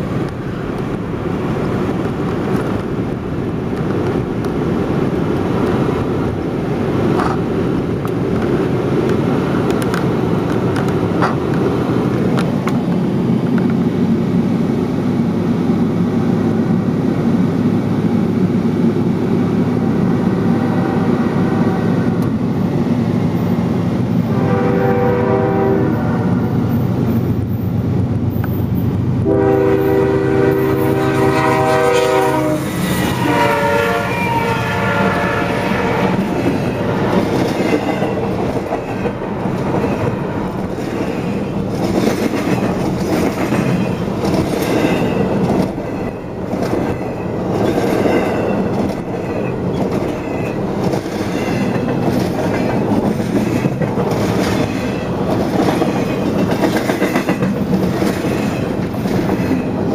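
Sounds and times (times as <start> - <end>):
wheels clacking over rail joints: 0.0 - 13.8, 35.9 - 59.9
train cars rumbling past: 0.0 - 59.9
locomotive air horn: 20.4 - 22.2, 24.3 - 26.3, 29.2 - 37.0.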